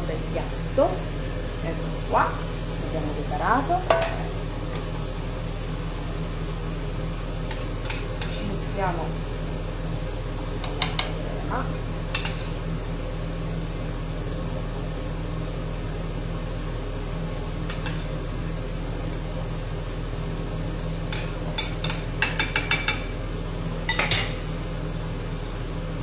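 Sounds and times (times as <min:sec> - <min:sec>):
steady low hum: 0:00.0 - 0:26.0
metal spoon clinking on saucepan: 0:21.1 - 0:23.1, 0:23.9 - 0:24.4.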